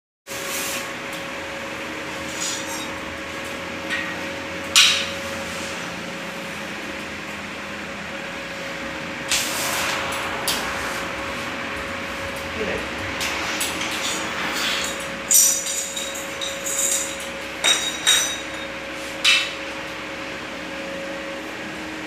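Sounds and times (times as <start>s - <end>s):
welding hiss and hum: 0.3s - 22.0s
metal tubes knocking: 13.8s - 18.7s.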